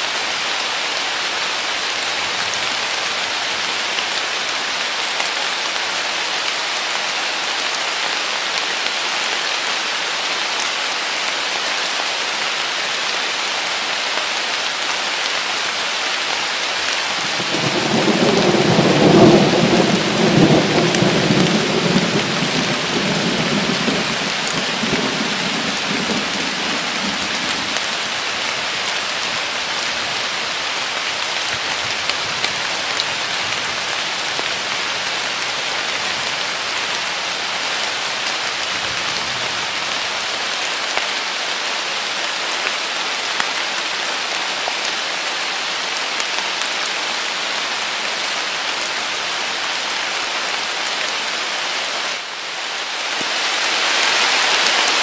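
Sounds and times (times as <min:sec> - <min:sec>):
heavy rain falling: 0:00.0 - 0:55.0
low thunder rumble: 0:17.4 - 0:27.4.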